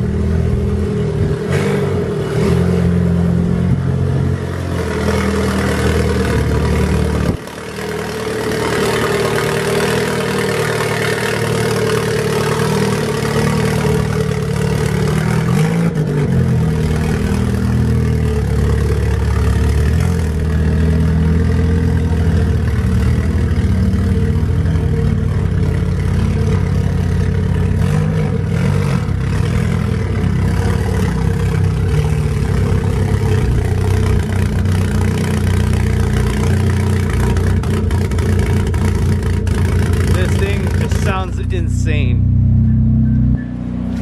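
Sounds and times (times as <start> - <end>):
car engine idling: 0.0 - 44.0.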